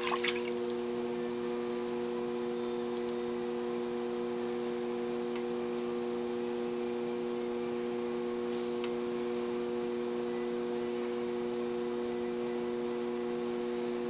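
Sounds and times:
potter's wheel humming: 0.0s - 14.0s.

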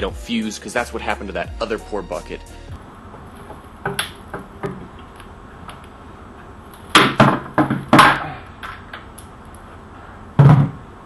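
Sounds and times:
plastic buckets knocking: 3.5s - 5.0s, 7.0s - 8.4s, 10.4s - 10.9s.

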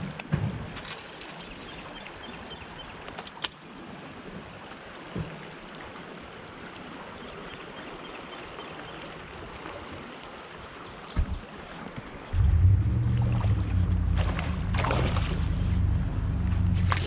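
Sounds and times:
dull knocks: 11.2s - 11.5s
river water rushing: 11.5s - 17.0s.

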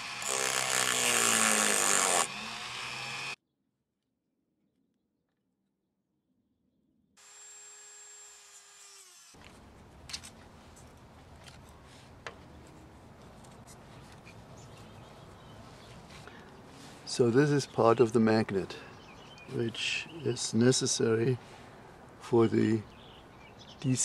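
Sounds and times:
small electric motor whining: 0.0s - 3.4s.

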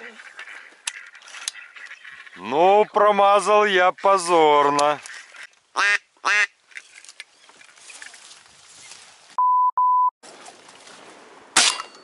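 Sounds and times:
faint wind through reeds: 0.0s - 9.4s, 10.2s - 11.6s
censor bleep: 9.4s - 10.1s.

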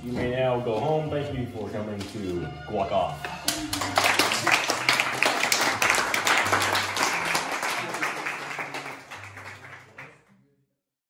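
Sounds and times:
people clapping: 3.3s - 10.3s.

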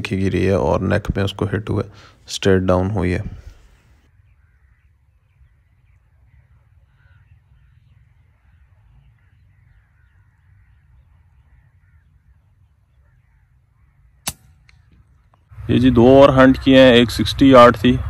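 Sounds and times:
birds calling faintly: 0.0s - 18.0s
air rifle shot: 14.2s - 14.9s.

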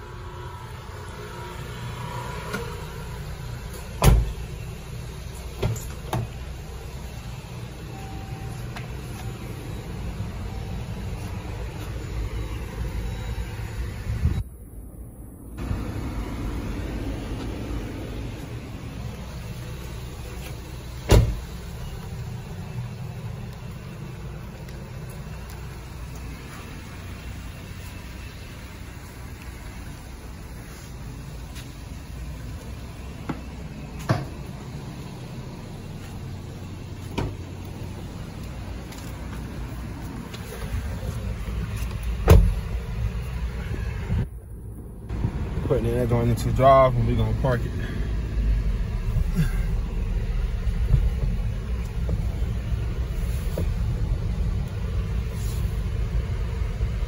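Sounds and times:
car engine idling: 0.0s - 57.0s
car door opening: 3.7s - 4.5s, 20.4s - 21.6s, 37.0s - 37.5s, 41.7s - 42.8s.

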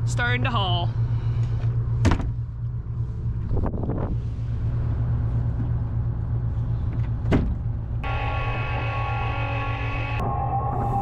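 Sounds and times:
boat engine humming: 0.0s - 11.0s
knocks and clunks: 2.0s - 2.4s, 6.9s - 7.8s.

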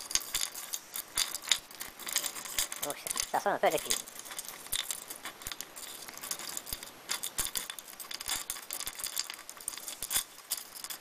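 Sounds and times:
metal parts clinking: 0.0s - 11.0s
toothbrush scrubbing metal parts: 0.0s - 11.0s.

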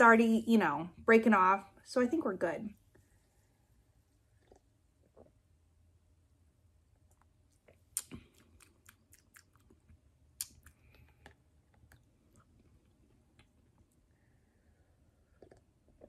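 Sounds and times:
mouth clicks and lip smacks: 4.4s - 5.4s, 7.0s - 14.0s, 15.2s - 16.0s.

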